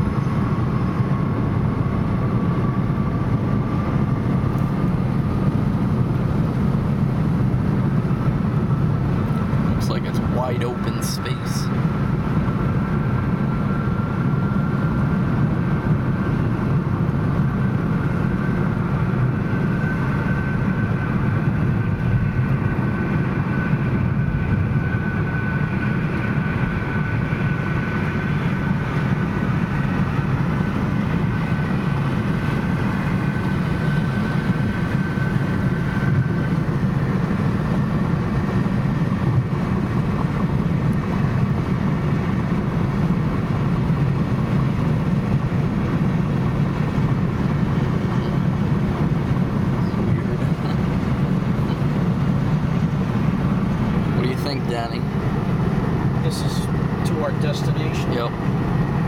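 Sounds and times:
car cabin road noise: 41.8s - 58.7s.

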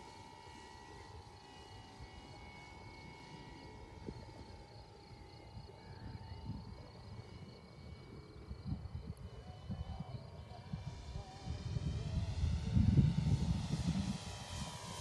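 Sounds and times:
small propeller plane droning: 0.0s - 15.0s
wind rumble on microphone: 5.5s - 15.0s.

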